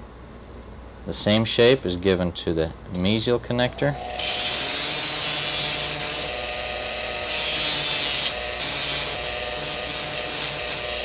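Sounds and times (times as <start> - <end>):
dental handpiece motor whine: 3.7 - 11.0
sanding disc grinding metal: 4.2 - 6.4, 7.2 - 11.0.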